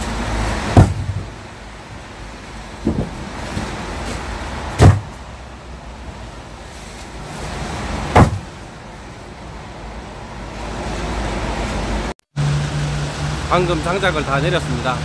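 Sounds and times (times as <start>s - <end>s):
firewood bags thudding on deck: 0.7s - 1.4s, 2.8s - 5.2s, 8.1s - 8.5s.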